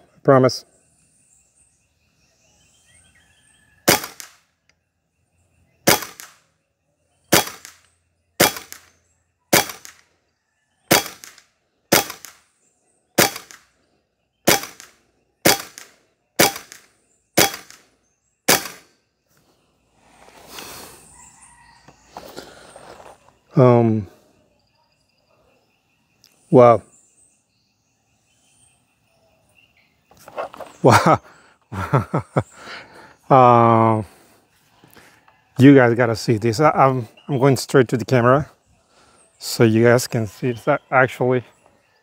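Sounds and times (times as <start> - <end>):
air rifle shots: 3.8 - 4.4, 5.8 - 6.4, 7.3 - 7.8, 8.4 - 8.9, 9.5 - 10.0, 10.9 - 12.4, 13.2 - 13.7, 14.5 - 17.8, 18.5 - 18.9.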